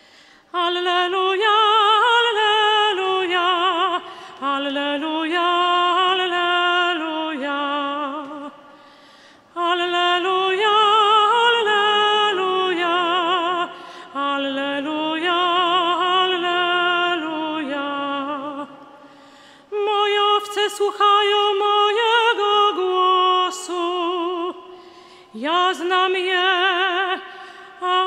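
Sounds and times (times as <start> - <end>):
soprano singing operatic: 0.5 - 8.7, 9.5 - 19.0, 19.6 - 28.0.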